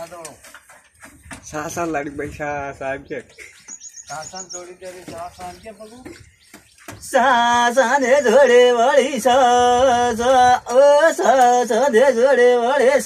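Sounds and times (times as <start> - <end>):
person singing folk melody: 7.0 - 13.0.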